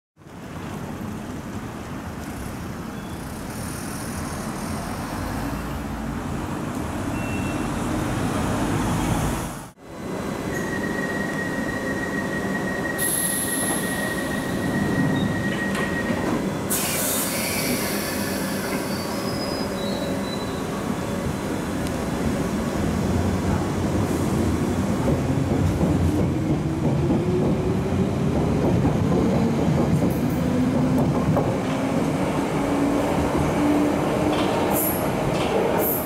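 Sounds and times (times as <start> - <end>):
train high whine: 9.8 - 22.0
train doors hissing: 11.6 - 20.8, 34.2 - 36.0.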